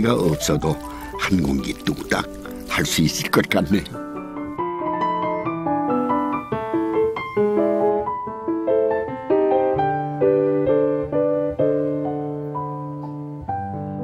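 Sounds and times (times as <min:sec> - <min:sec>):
gentle piano melody: 0:00.0 - 0:14.0.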